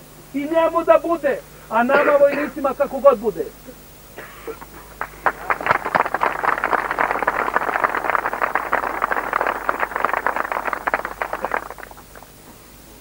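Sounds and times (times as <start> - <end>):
crowd applauding: 4.6 - 12.4.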